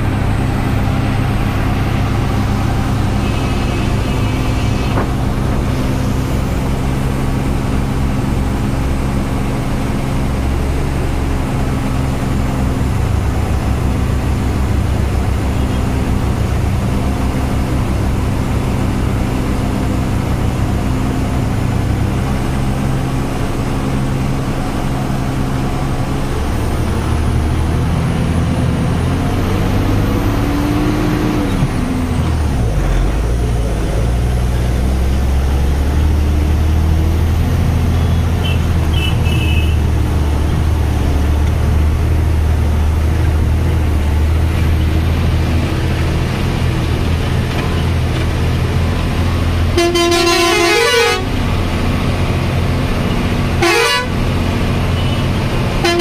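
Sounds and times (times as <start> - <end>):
truck diesel engine drone: 0.0 - 56.0
truck horn: 1.6 - 6.4, 37.9 - 39.9, 49.6 - 51.5, 53.6 - 56.0.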